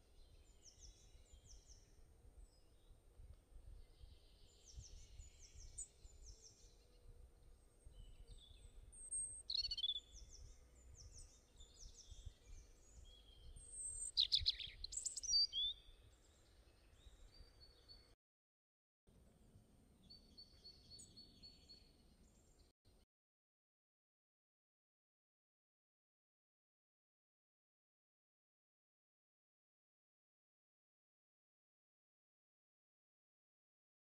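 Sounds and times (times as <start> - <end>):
small birds chirping: 3.7 - 18.2, 20.0 - 22.7.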